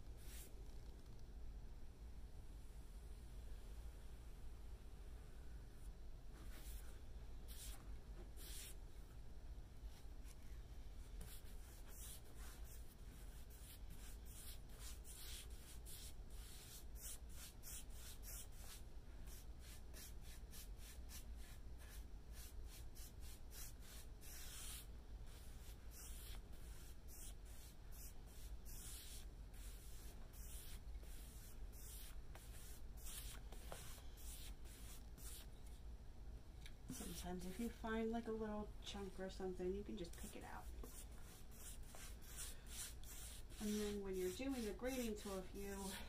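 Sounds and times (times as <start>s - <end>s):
paintbrush swishing on wood: 6.4s - 8.8s, 22.3s - 35.5s, 40.1s - 46.0s.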